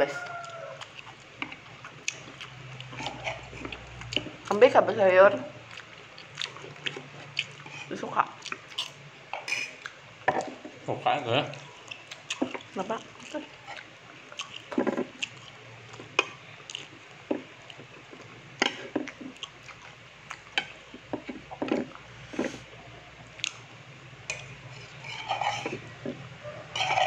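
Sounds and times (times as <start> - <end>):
chewing: 0.1 - 4.8, 5.5 - 10.6, 11.5 - 23.7, 24.3 - 27.0
utensils clicking on plate: 26.7 - 27.0.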